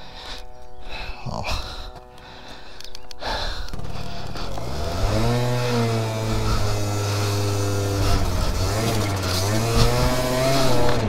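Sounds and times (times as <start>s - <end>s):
scooter engine under load: 3.2s - 11.0s.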